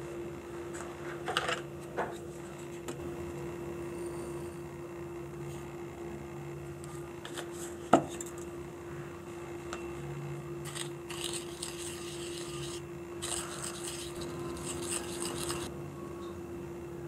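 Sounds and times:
steady low hum: 0.0s - 17.0s
plastic spoon scraping powder: 10.7s - 15.7s.

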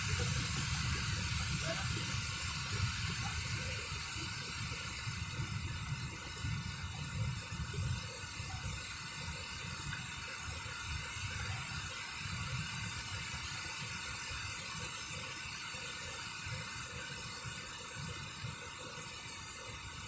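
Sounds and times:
wind buffeting microphone: 0.0s - 13.3s
water rushing over dam spillway: 0.0s - 20.0s.

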